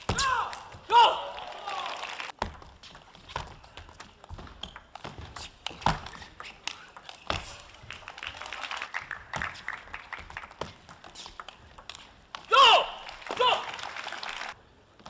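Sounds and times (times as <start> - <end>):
table tennis ball clicking: 9.4 - 12.5.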